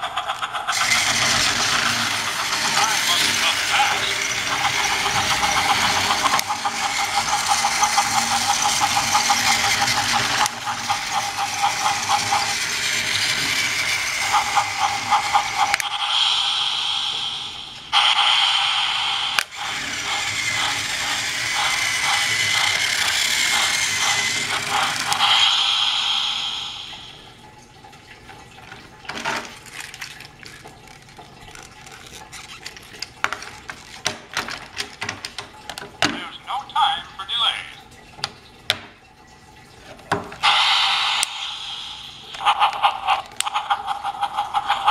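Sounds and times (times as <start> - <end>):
toy train motor whine: 0.0 - 27.3, 30.9 - 34.1, 40.4 - 44.9.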